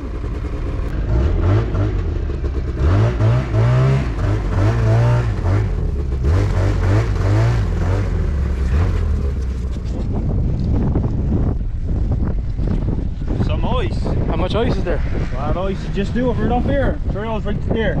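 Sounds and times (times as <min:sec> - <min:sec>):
ice auger engine revving: 0:00.9 - 0:09.5.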